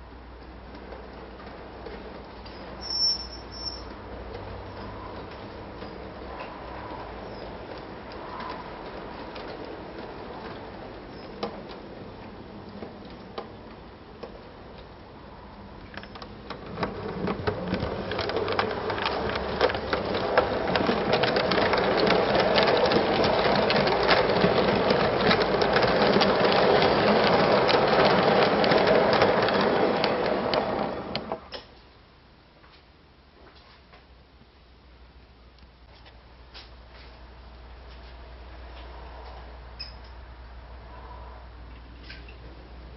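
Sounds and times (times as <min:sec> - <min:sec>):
wheels clicking on rails: 0:00.3 - 0:31.7.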